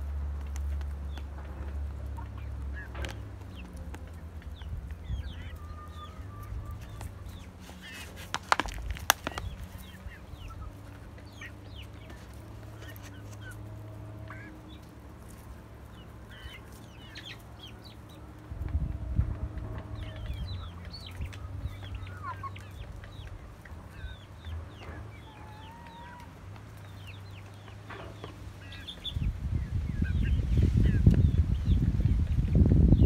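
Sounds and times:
chickens clucking and chirping: 0.0s - 33.0s
beaks pecking plastic cup: 6.9s - 9.9s.

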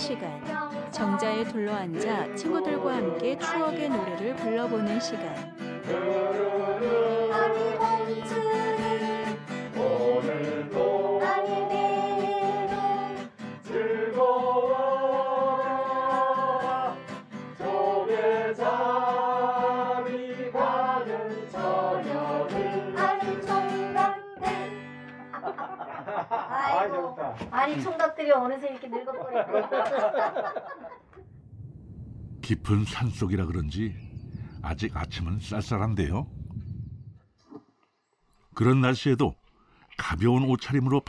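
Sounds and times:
group singing: 0.6s - 24.8s
strummed acoustic guitar: 5.4s - 10.9s, 22.5s - 25.3s.

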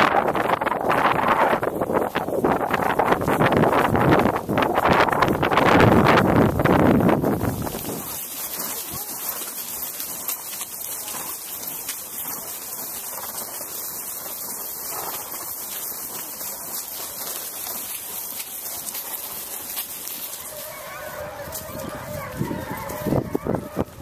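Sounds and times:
faint wavering cries: 20.3s - 24.0s.

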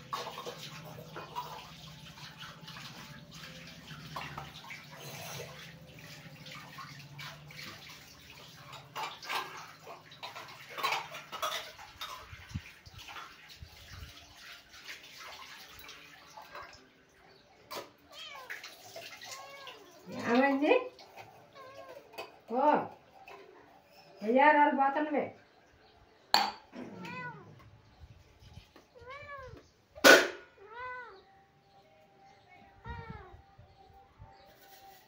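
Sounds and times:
water running and splashing: 0.0s - 23.6s.

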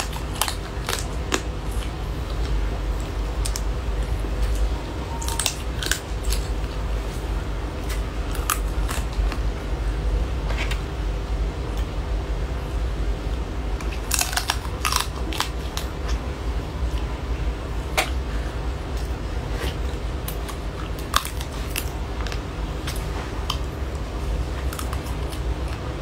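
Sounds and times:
crunching and biting crab shell: 0.0s - 7.1s, 13.7s - 16.3s, 18.9s - 26.0s
steady low hum: 0.0s - 26.0s.

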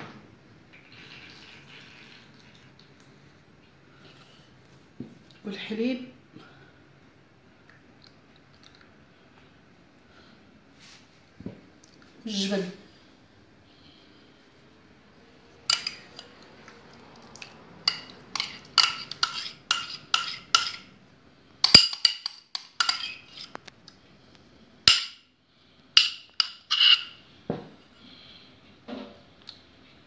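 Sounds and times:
metal spoon scraping a bowl: 15.7s - 16.4s, 17.8s - 20.9s, 21.6s - 23.6s, 26.0s - 27.2s.

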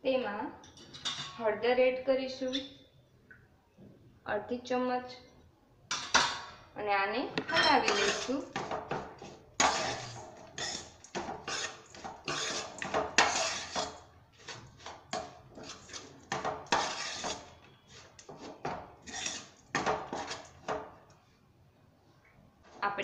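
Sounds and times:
metal spoon scraping frying pan: 7.6s - 20.7s.

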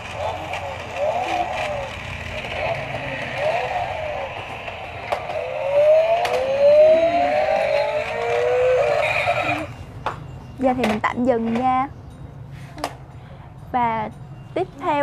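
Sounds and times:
toy handling clicks: 0.0s - 9.6s
electronic toy siren and engine sounds: 0.0s - 9.9s.

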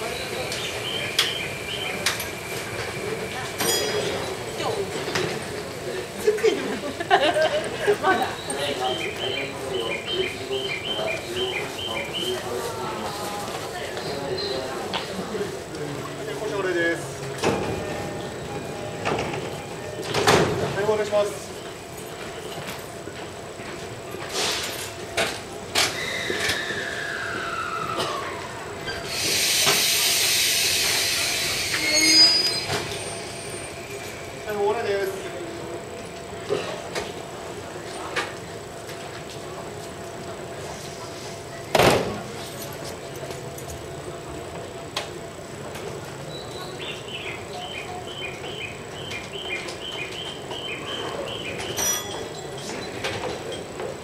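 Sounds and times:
train station background: 0.0s - 54.0s
air hiss: 29.0s - 32.6s.

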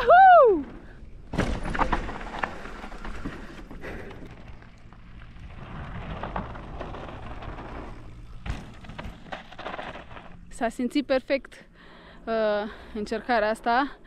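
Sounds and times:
tyres rolling over dirt and stones: 0.6s - 10.8s
bike knocks and rattles: 1.2s - 10.6s.

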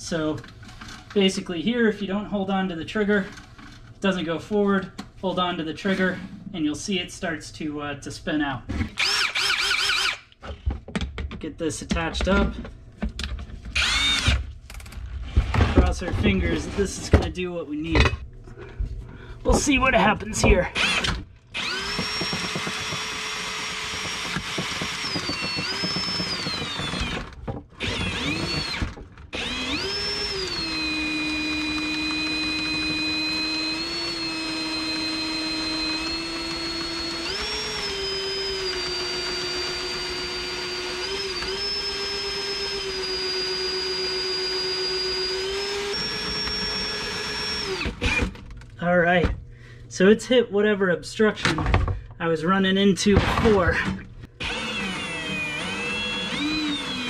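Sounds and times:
cordless drill motor whine: 9.0s - 10.3s, 13.8s - 14.4s, 20.8s - 48.3s, 54.4s - 57.0s.

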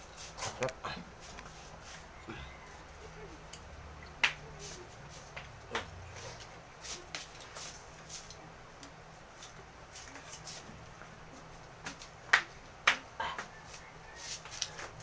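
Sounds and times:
chewing and utensil clicks: 3.4s - 4.2s.

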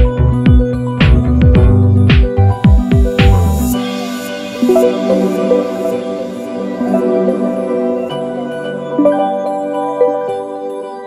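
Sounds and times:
background music with held notes: 0.0s - 11.0s.

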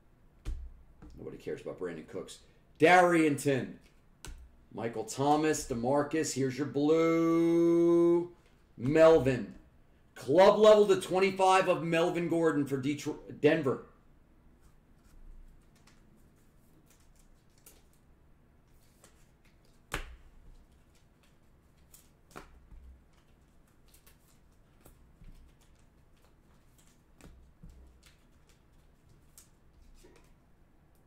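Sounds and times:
trading cards being handled: 14.6s - 30.4s.

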